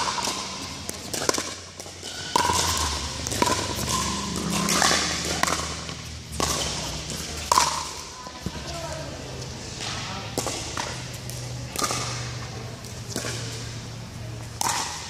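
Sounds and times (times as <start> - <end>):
paddles hitting plastic ball: 0.0 - 8.5, 9.8 - 12.2, 14.4 - 15.0.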